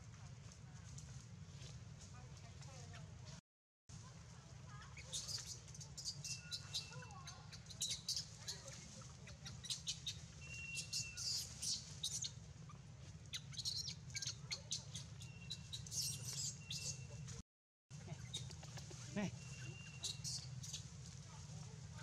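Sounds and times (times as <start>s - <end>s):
high-pitched chirps and squeaks: 5.0s - 12.3s, 13.3s - 17.2s, 18.2s - 20.9s.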